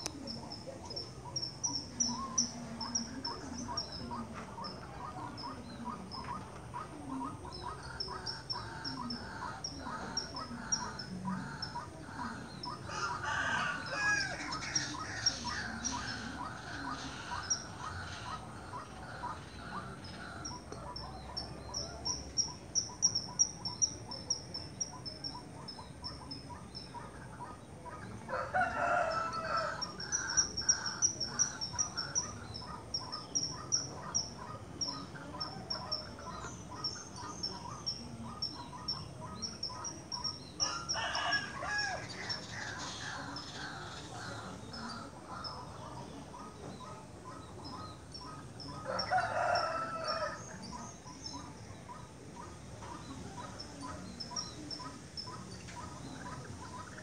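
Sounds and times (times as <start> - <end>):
birds calling: 0.0 - 57.0
rooster crowing: 12.9 - 15.8, 28.3 - 30.1, 40.6 - 42.5, 48.8 - 50.6.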